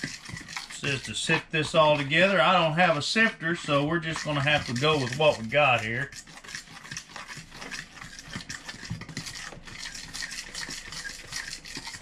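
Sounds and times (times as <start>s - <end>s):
hand stirring dry flour: 0.0s - 12.0s.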